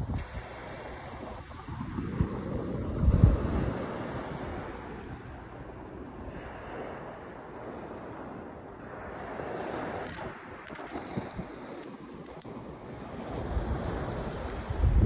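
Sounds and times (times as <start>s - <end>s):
waves washing up shingle beach: 0.0s - 15.0s
wind buffeting microphone: 0.0s - 15.0s.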